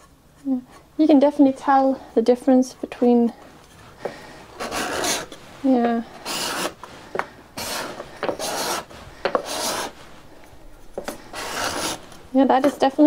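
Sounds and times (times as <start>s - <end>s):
card scraper scraping wood: 4.0s - 5.4s, 6.2s - 10.0s, 10.9s - 12.8s.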